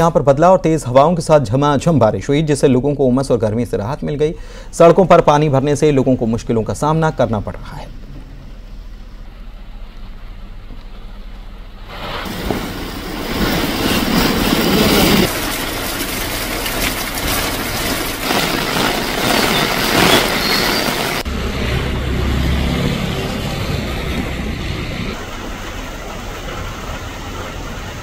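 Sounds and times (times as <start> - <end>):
vehicle engines: 5.4 - 11.7, 16.7 - 28.0
low engine hum: 7.2 - 15.3, 20.9 - 28.0
rain and wet tyres hissing: 11.8 - 28.0.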